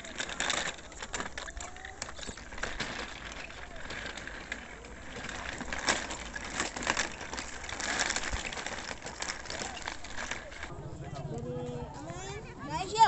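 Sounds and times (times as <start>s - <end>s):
wheels rattling on grit: 0.0s - 13.0s.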